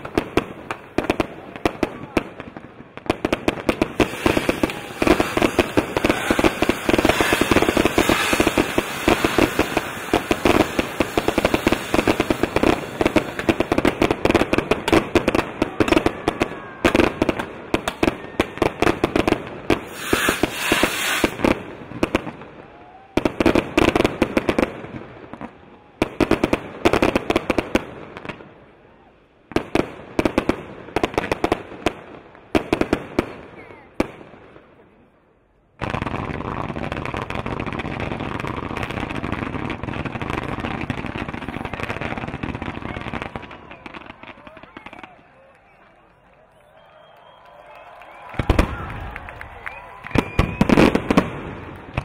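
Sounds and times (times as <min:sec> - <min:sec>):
fireworks bangs and crackling: 0:00.0 - 0:52.0.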